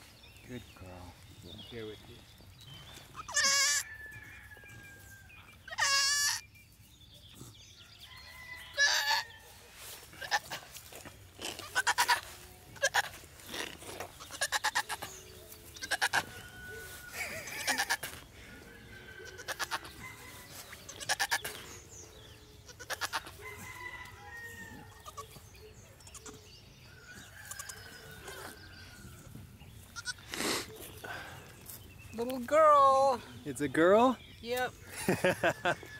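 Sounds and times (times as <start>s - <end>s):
goat bleating: 3.1s - 3.9s, 5.7s - 6.4s, 8.8s - 9.2s, 10.1s - 10.8s, 11.4s - 15.2s, 15.8s - 16.3s, 17.4s - 18.2s, 19.2s - 19.9s, 20.8s - 21.6s, 22.6s - 23.4s, 24.8s - 25.4s, 26.0s - 26.4s, 29.8s - 30.4s.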